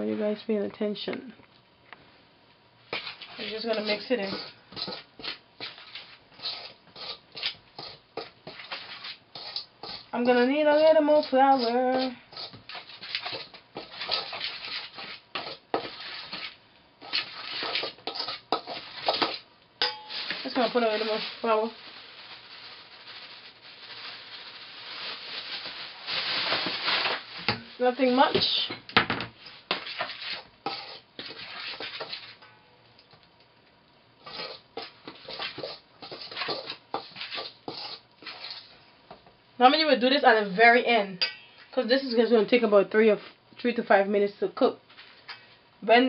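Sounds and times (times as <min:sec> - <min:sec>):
spoon scraping steel bowl: 0:03.0 - 0:21.2, 0:29.7 - 0:32.4, 0:34.2 - 0:38.7.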